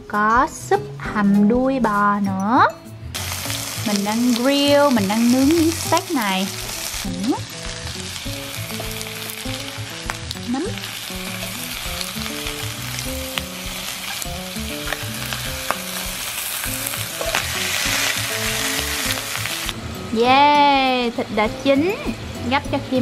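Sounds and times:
light background music: 0.0 - 23.0
steak sizzling on grill pan: 3.2 - 19.8.

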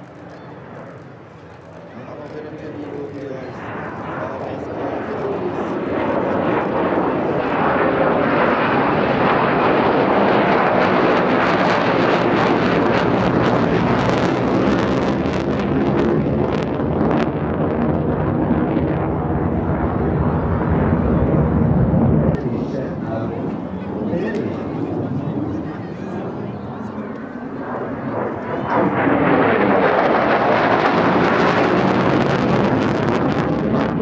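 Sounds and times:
ragged jet crackle: 0.0 - 9.4
jet noise overhead: 0.0 - 34.0.

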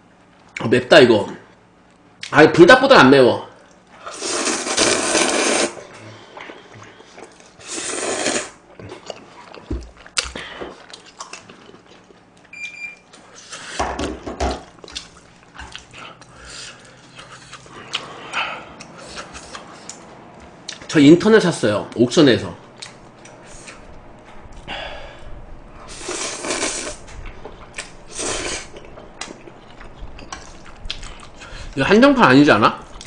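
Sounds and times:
noodles being slurped: 4.1 - 8.6, 25.9 - 27.0
chewing and smacking: 6.1 - 7.6, 8.7 - 12.5, 14.6 - 20.9, 22.8 - 24.0, 28.7 - 31.7.

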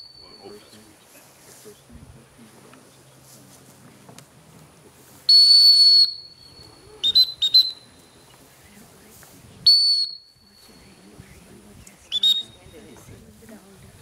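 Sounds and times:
dog whistle long blast: 5.3 - 6.2.

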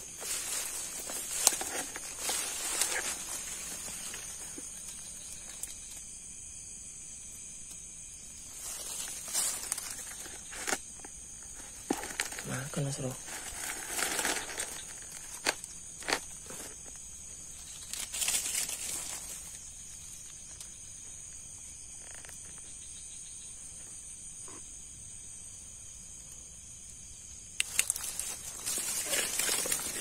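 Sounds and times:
rustling and handling noise: 0.0 - 6.0, 8.4 - 20.6, 27.6 - 30.0
night insects chirring: 0.0 - 30.0.

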